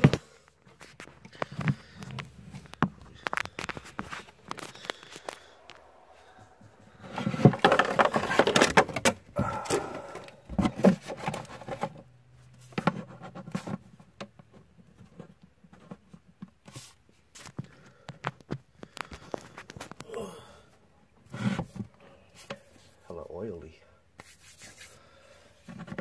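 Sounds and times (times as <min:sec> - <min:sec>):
plastic action figure rustling and clicking: 0:00.0 - 0:09.2.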